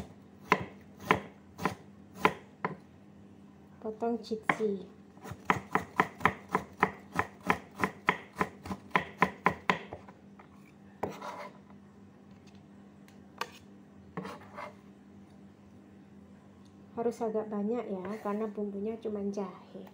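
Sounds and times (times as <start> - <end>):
cleaver chopping on wooden block: 5.3 - 10.0
blade scraping and tapping board: 13.4 - 13.6.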